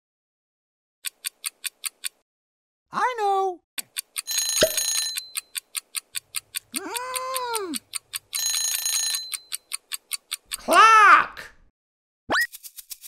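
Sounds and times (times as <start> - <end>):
rapid clock ticking: 1.0 - 2.2, 3.8 - 10.8
alarm clock ring: 4.3 - 5.6, 8.4 - 9.6
cartoon voice sounds: 6.8 - 7.8, 10.6 - 11.5.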